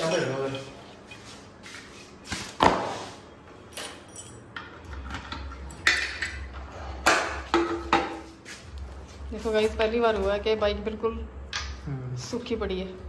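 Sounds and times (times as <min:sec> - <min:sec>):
keys clinking: 0:03.7 - 0:04.6.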